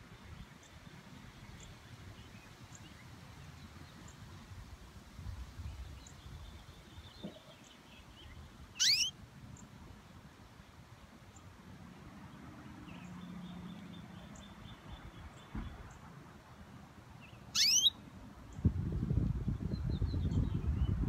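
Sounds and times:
faint canary chirps: 5.9 - 9.7, 17.2 - 18.0
canary rising call: 8.8 - 9.2, 17.5 - 18.0.

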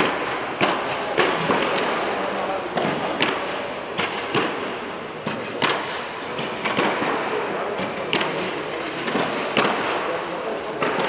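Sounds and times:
arrows thudding into targets: 0.0 - 10.1
steady background hum: 0.0 - 11.0.

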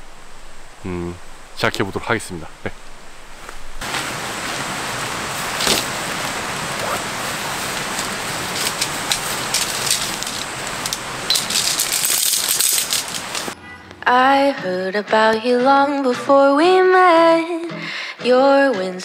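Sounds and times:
rain pattering: 0.0 - 13.6
sharp rattling clicks: 8.5 - 13.6.

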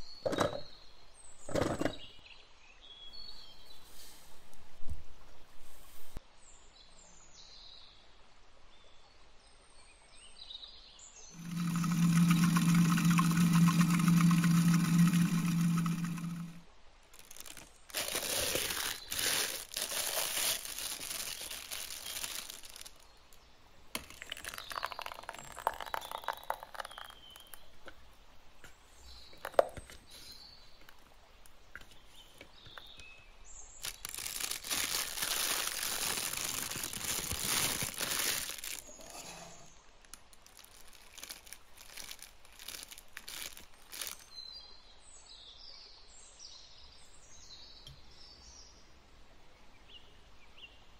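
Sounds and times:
plastic bag crinkling: 11.4 - 23.1, 24.0 - 27.6, 33.8 - 39.1, 40.0 - 44.3.

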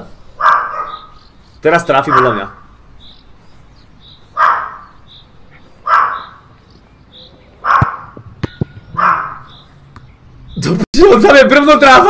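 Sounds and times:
dog barking loudly: 0.3 - 1.2, 2.0 - 2.8, 4.3 - 5.0, 5.6 - 6.6, 7.6 - 9.7.

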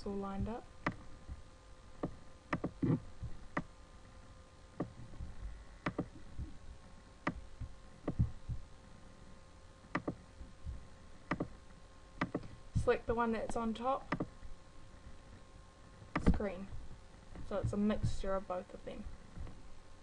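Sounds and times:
faint steady hum: 0.0 - 20.0
computer mouse clicking: 2.0 - 3.7, 5.8 - 6.5, 9.9 - 10.2, 11.3 - 11.6, 12.2 - 12.5, 14.1 - 14.3.

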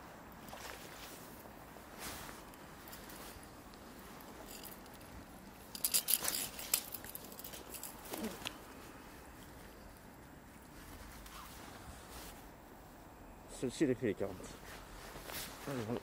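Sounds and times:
soft handling sounds: 0.1 - 13.1, 14.2 - 16.0.

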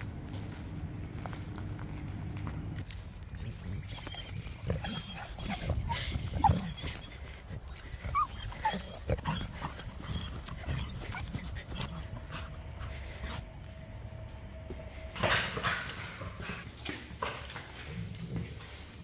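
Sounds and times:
steady low rumble: 0.0 - 16.8
squeaky animal calls: 3.8 - 12.6.

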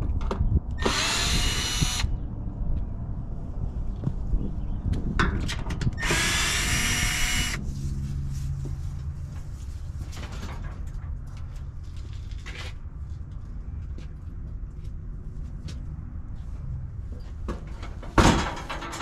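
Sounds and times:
cordless drill whining: 0.8 - 2.1, 6.0 - 7.6.

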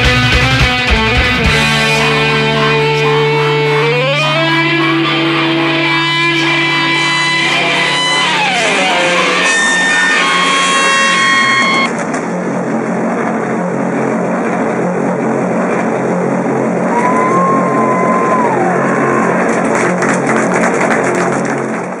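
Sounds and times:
rock band guitar and drums: 0.0 - 12.0
whining guitar bending downward: 0.0 - 21.8.

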